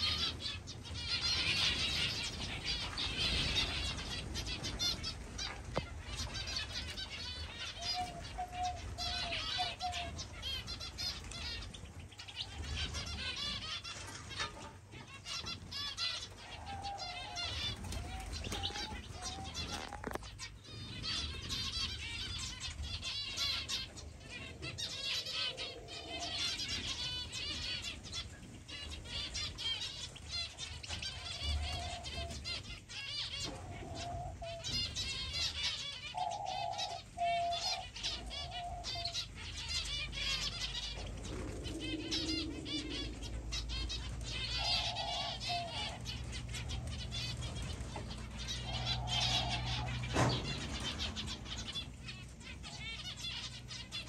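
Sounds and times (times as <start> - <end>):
low held bird calls: 0.0 - 54.0
wings fluttering: 15.2 - 32.4, 39.6 - 53.6
finches chirping: 16.4 - 22.5.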